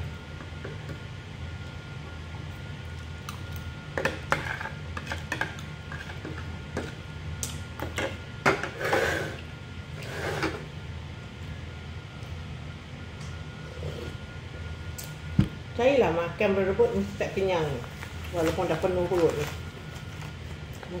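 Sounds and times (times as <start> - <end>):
low room hum: 0.0 - 21.0
forks scraping a plate: 8.6 - 9.4.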